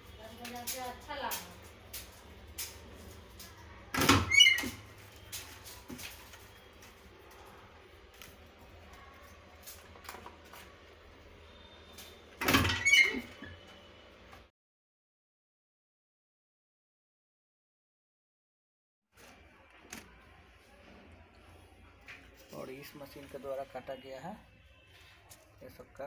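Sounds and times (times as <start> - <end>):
clattering knocks with squeak: 12.4 - 13.7.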